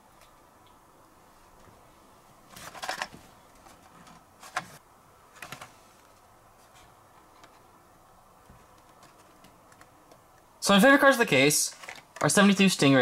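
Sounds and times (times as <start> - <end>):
plastic blister packs clicking and rattling: 2.6 - 4.8, 11.7 - 12.8.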